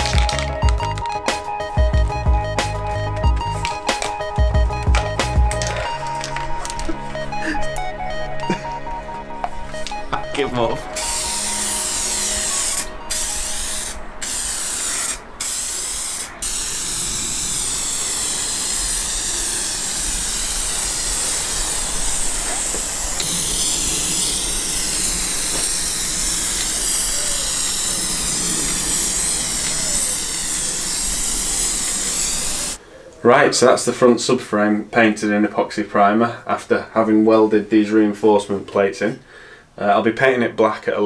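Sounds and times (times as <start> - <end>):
aerosol can spraying: 2.6 - 6.9, 10.9 - 32.8.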